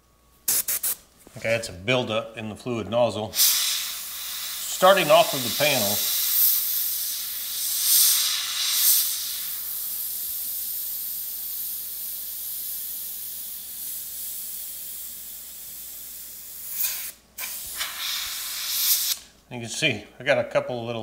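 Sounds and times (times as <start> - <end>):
airbrush spraying hiss: 0.5 - 1.0, 3.3 - 19.3.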